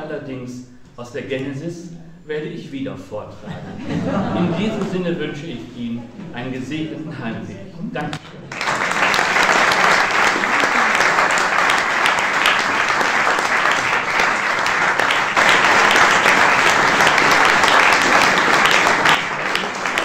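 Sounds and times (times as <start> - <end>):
audience applauding: 8.5 - 20.0.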